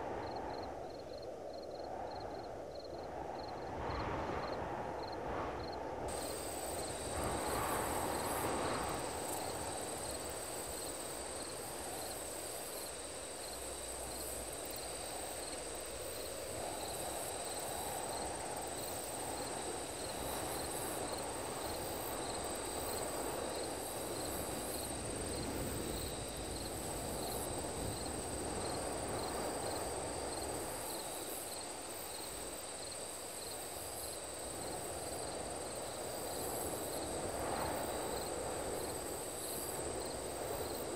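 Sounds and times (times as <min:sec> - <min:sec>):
low wash of noise: 0:00.0 - 0:30.8
crickets trilling and chirping: 0:00.0 - 0:40.9.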